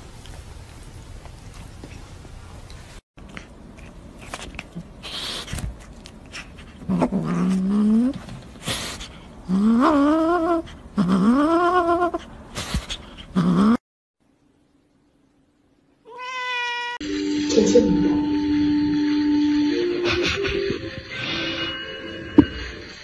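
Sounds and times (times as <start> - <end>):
cat meowing: 16.1 - 17.0.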